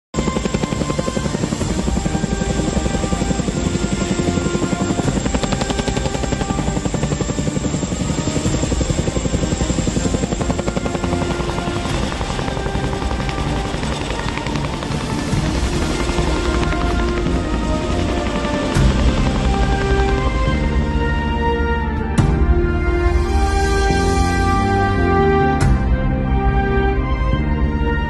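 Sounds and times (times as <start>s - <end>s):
helicopter rotor chop: 0.2s - 21.6s
music playing: 0.2s - 28.0s.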